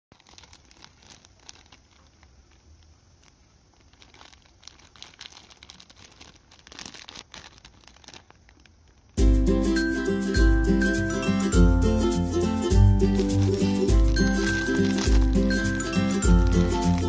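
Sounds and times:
plastic package crinkling: 0.1s - 9.2s, 13.1s - 17.0s.

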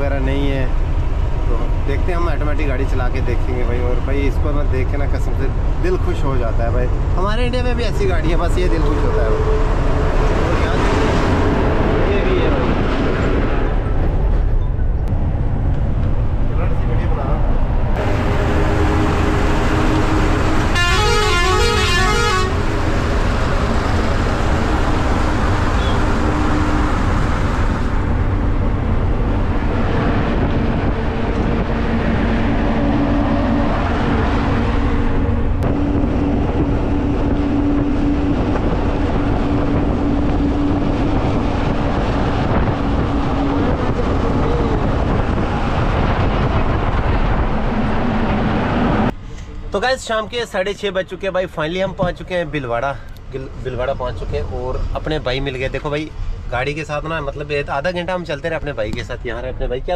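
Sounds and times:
truck engine and road noise: 0.0s - 59.9s
truck horn playing notes: 18.0s - 22.9s.

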